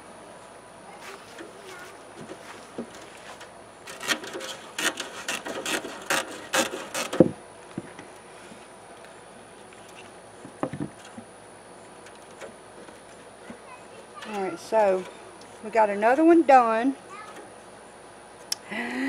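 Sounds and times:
faint handling sounds: 0.9 - 5.0.

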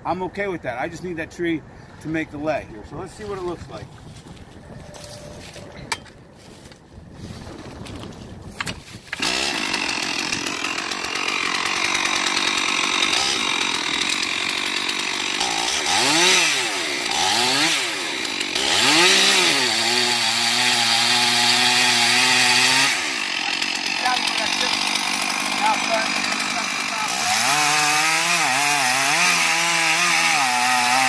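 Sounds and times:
chainsaw cutting wood: 8.0 - 31.0.

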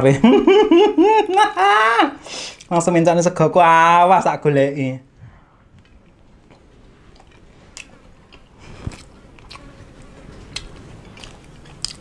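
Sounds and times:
person chewing food: 5.8 - 12.0.

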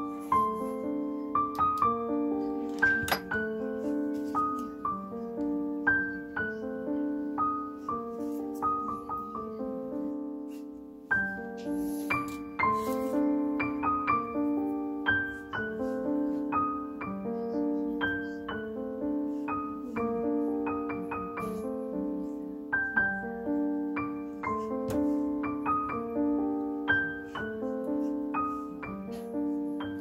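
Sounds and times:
gentle piano music: 0.0 - 30.0.

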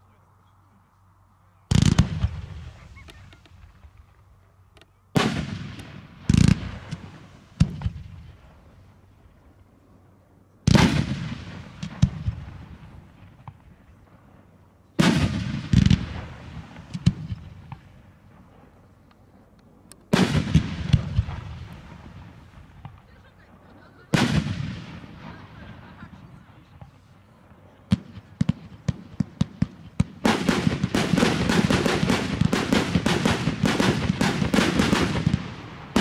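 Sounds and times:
firework booms: 1.7 - 3.0, 5.2 - 8.8, 10.7 - 13.7, 15.0 - 18.5, 20.1 - 23.1, 24.1 - 27.0, 27.9 - 36.0.

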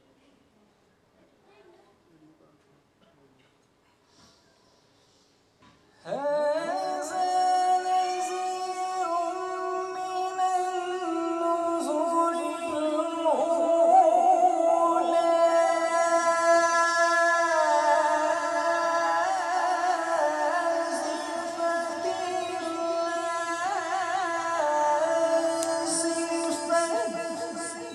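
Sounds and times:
man reciting melodically: 6.0 - 27.9.

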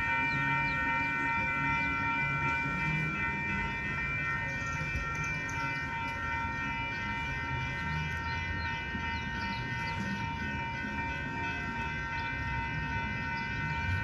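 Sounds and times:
diesel locomotive engine rumble: 0.0 - 14.0.

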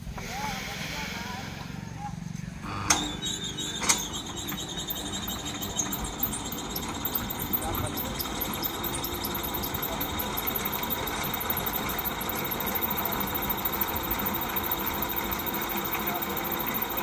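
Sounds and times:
electric motor running under load: 2.6 - 17.0
fast even ticking: 4.2 - 17.0.

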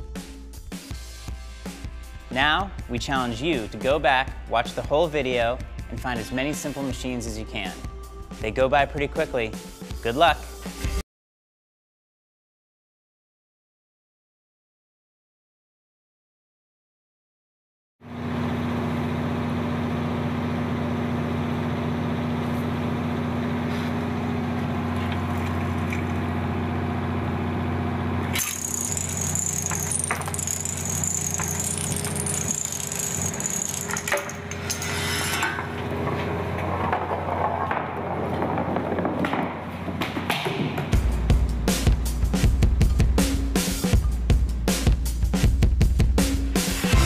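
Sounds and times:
machine parts clicking and rattling: 28.4 - 34.7.

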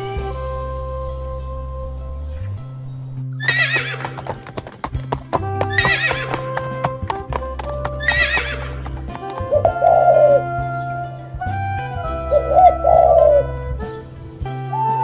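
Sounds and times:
background music: 0.0 - 15.0
horses whinnying: 3.4 - 10.6
hoofbeats of running herd: 3.5 - 10.3.

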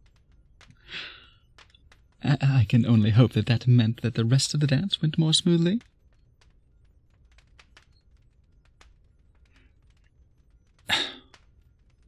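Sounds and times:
faint clicks: 0.0 - 2.2, 5.0 - 12.0.

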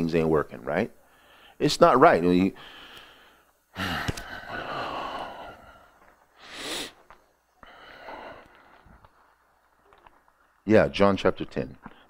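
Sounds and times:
short sharp breath: 2.6 - 5.5
person's drawn-out vocal sound: 3.8 - 5.7.

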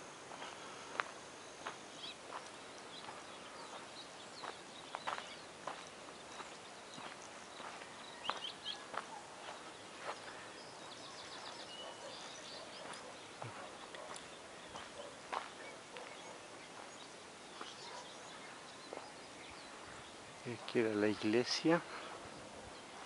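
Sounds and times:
birds chirping: 0.0 - 23.0
steady outdoor hiss: 0.0 - 23.0
footsteps on rubble: 12.8 - 16.2.

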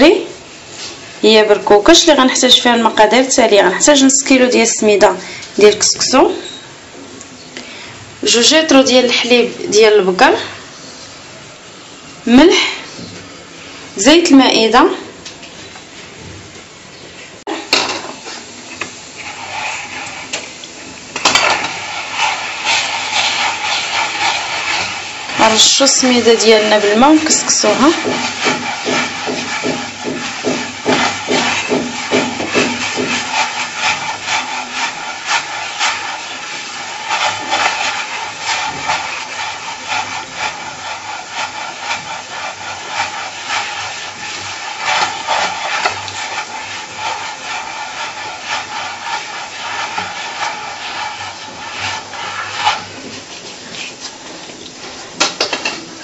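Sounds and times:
hands rubbing grains on a tray: 18.8 - 20.6, 21.2 - 54.6.

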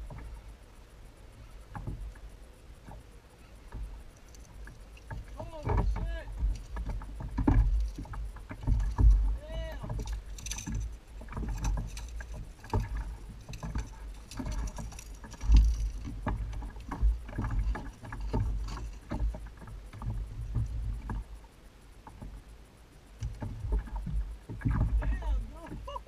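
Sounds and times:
low wind rumble: 0.0 - 26.0
knocks and clicks of gear: 3.6 - 21.3
water slapping against kayak hull: 3.6 - 21.4, 23.2 - 26.0.

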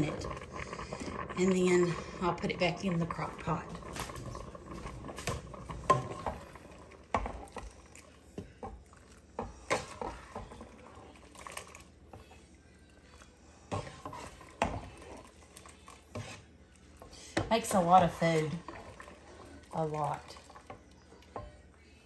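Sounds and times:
metal pot and utensil clinking: 1.4 - 12.4.

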